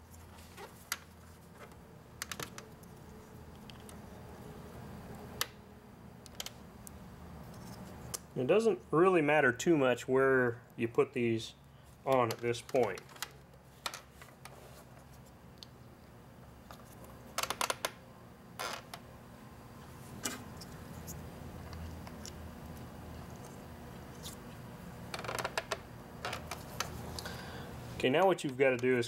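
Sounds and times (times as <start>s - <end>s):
low steady hum: 18.0s - 29.0s.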